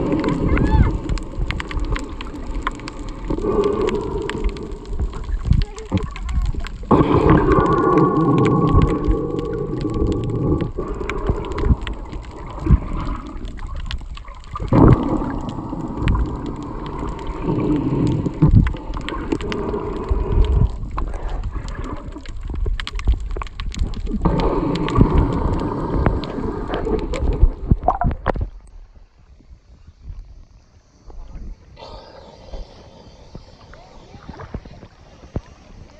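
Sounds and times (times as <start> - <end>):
clicks and pops: 0.0 - 28.7
water gurgling and sloshing: 0.0 - 35.9.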